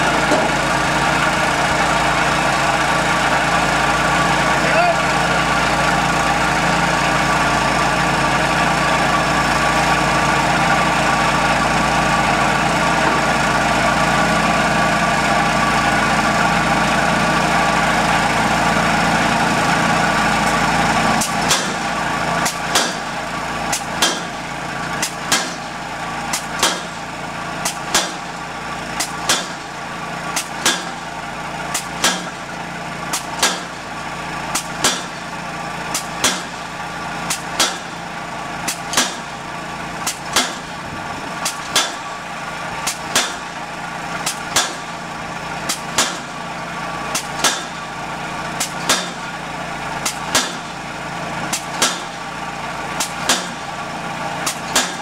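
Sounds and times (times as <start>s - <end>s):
steady engine drone: 0.0s - 55.0s
pile hammer striking wooden piling: 21.2s - 24.4s, 25.0s - 25.7s, 26.3s - 27.0s, 27.6s - 28.2s, 29.0s - 29.7s, 30.4s - 31.0s, 31.7s - 32.4s, 33.1s - 33.7s, 34.6s - 35.2s, 35.9s - 36.6s, 37.3s - 38.0s, 38.7s - 39.3s, 40.0s - 40.8s, 41.4s - 42.1s, 42.8s - 43.5s, 44.2s - 45.0s, 45.7s - 46.4s, 47.1s - 47.8s, 48.6s - 49.2s, 50.0s - 50.8s, 51.5s - 52.2s, 53.0s - 53.7s, 54.4s - 55.0s.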